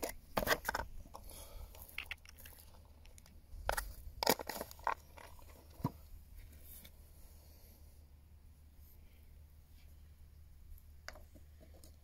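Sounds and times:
handling clicks and crackles: 0.0s - 6.0s.

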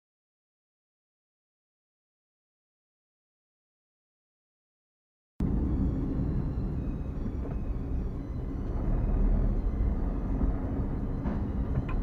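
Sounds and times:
car engine and tyres rumbling: 5.4s - 12.0s.

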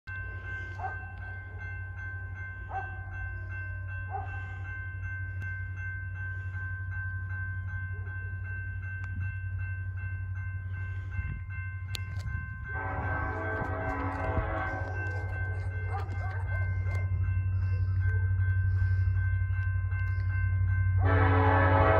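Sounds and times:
crossing bell ringing: 0.1s - 21.9s
low locomotive rumble: 0.1s - 21.9s
locomotive air horn: 12.7s - 15.3s, 21.0s - 21.9s.

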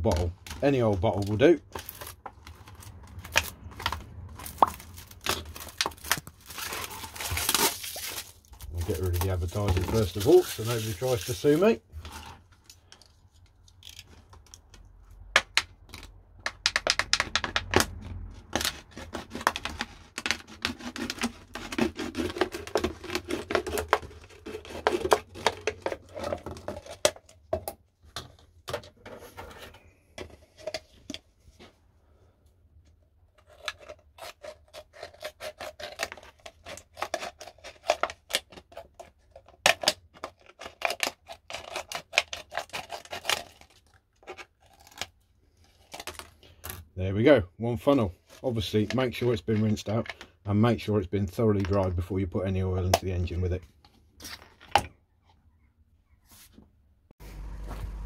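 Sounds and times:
plastic crinkling and squeaking: 0.0s - 15.2s, 17.6s - 31.1s, 33.3s - 46.9s
scissors cutting plastic bottle: 15.5s - 27.4s, 33.4s - 46.4s.

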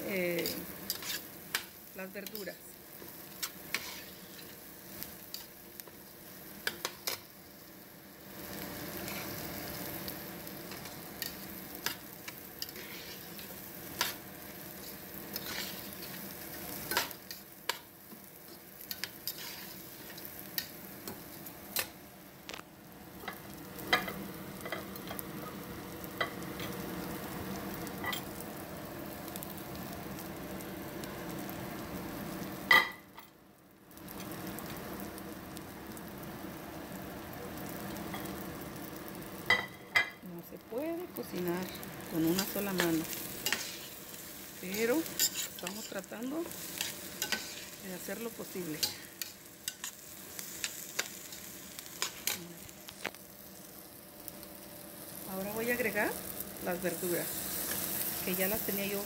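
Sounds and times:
rice sizzling in butter: 0.0s - 59.0s
metal spoon scraping a pot: 0.9s - 1.3s, 15.4s - 16.0s.

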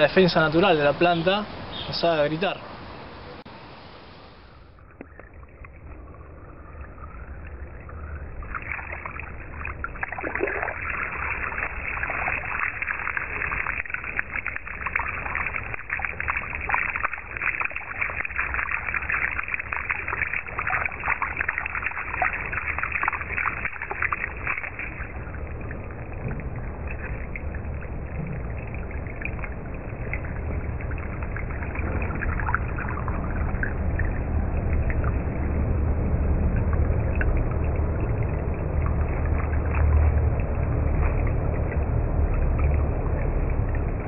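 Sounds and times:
garden hose water spraying: 3.5s - 35.3s.

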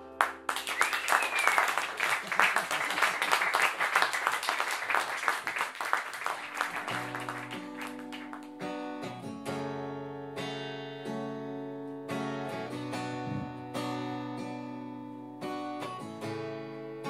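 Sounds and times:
acoustic guitars strumming chords: 6.2s - 17.0s.

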